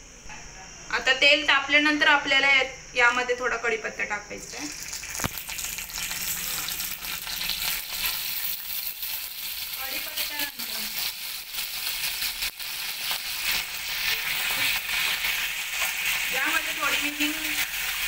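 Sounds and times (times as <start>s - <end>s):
leaves sizzling in hot oil: 4.4s - 18.0s
sharp oil pops: 5.1s - 5.5s.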